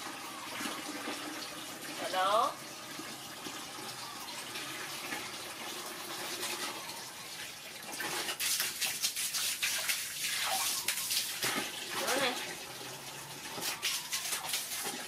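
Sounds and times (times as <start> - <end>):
hose water pouring into bucket: 0.0 - 15.0
monkey splashing on wet concrete: 8.2 - 12.4, 13.5 - 15.0.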